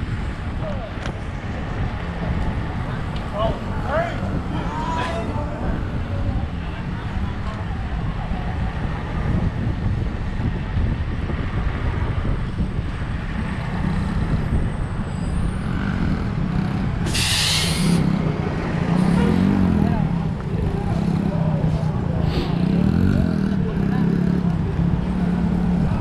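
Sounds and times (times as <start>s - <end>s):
vehicle engine rumbling: 0.0s - 26.0s
short hiss: 17.1s - 18.0s.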